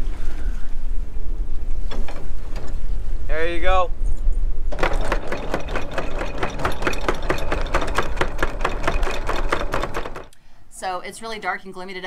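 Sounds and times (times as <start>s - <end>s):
anchor chain clattering: 4.7s - 10.4s.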